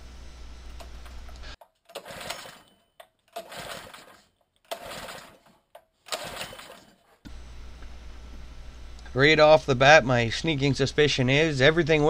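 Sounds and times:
engine pull-start whirring crank: 0:01.9 - 0:07.2.

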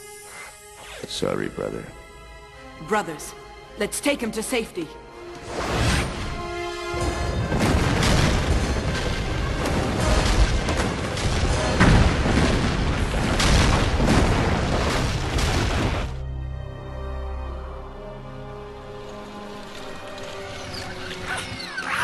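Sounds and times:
film music: 0:00.0 - 0:22.0
rumbling and crashing rock: 0:07.0 - 0:16.2.

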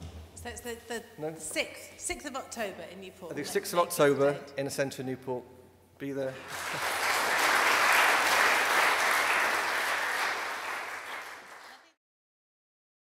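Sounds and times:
audience applauding: 0:06.4 - 0:12.0.

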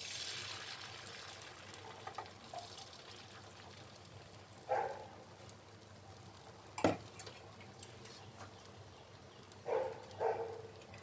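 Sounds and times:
batter poured into wok: 0:00.0 - 0:04.5
faint frying hiss: 0:00.0 - 0:11.0.

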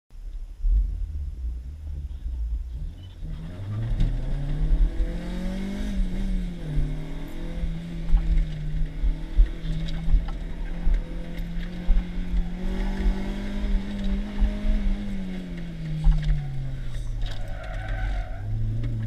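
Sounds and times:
car engine revving: 0:00.4 - 0:19.0.

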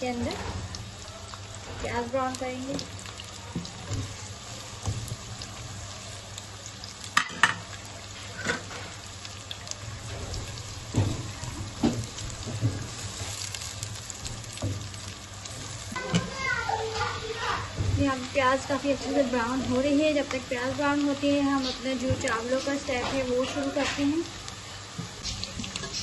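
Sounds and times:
onions frying in oil: 0:00.0 - 0:26.0
stirring and knocks in pot: 0:02.6 - 0:05.3, 0:10.0 - 0:17.1.

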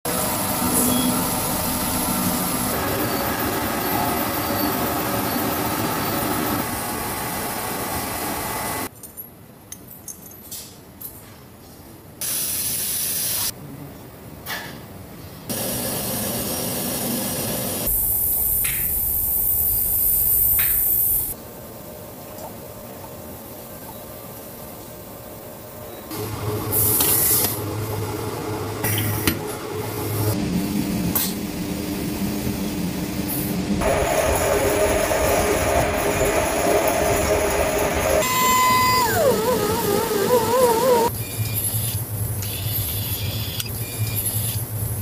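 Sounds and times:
polishing machine grinding: 0:33.8 - 0:41.1.

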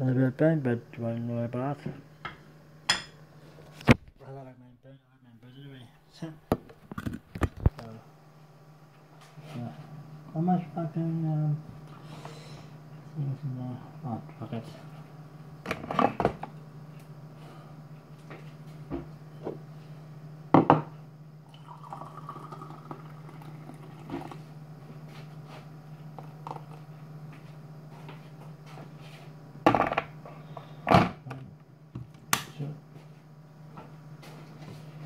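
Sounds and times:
steady low hum: 0:00.0 - 0:35.0
water pouring from kettle: 0:21.5 - 0:24.4.

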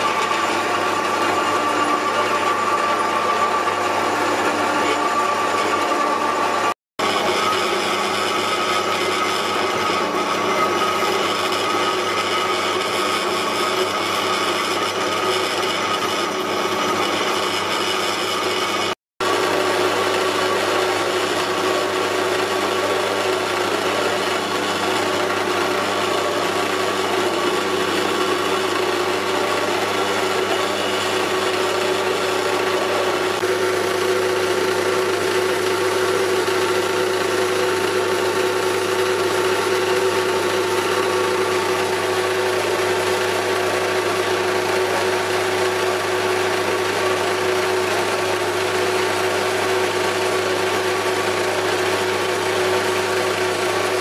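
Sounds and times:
bandsaw cutting metal: 0:00.0 - 0:54.0.

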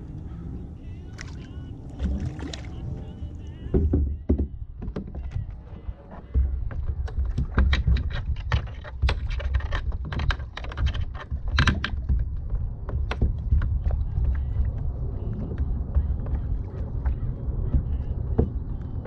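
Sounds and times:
steady low rumble: 0:00.0 - 0:04.8, 0:09.1 - 0:19.0.

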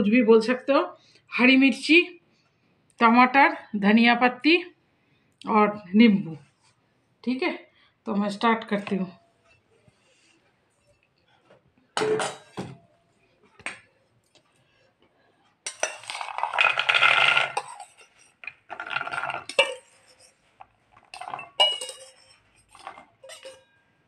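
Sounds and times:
metal bowls clattering: 0:12.0 - 0:12.9, 0:15.7 - 0:24.0
chickpeas sliding into steel bowl: 0:15.7 - 0:20.4
spoon clinking on bowl: 0:21.2 - 0:23.8.

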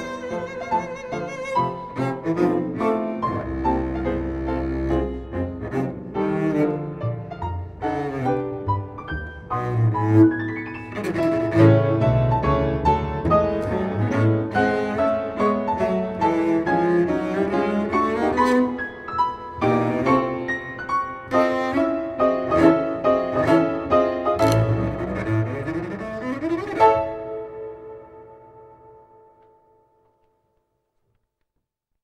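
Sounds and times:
double bass melody: 0:00.0 - 0:29.3
piano chords: 0:00.0 - 0:30.5.

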